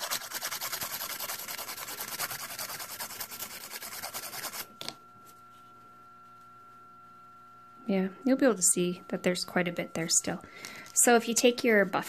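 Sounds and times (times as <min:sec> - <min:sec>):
nail file rasping: 0:00.0 - 0:04.7
faint steady hum: 0:00.0 - 0:12.0.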